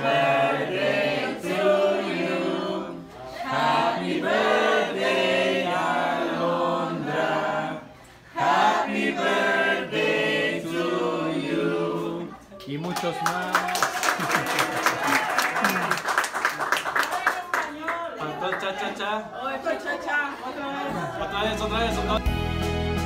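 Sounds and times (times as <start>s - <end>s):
group of people singing: 0.0s - 12.4s.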